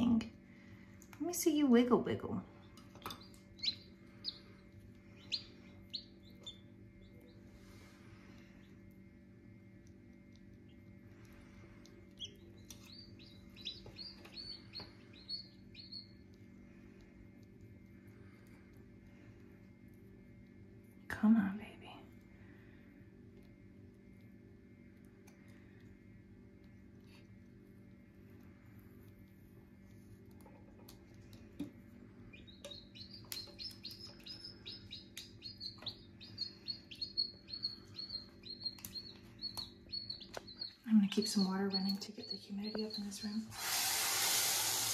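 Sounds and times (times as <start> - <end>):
steady low hum: 0.0 - 44.9
chick peeping: 3.0 - 7.4, 12.1 - 16.3, 32.3 - 43.5.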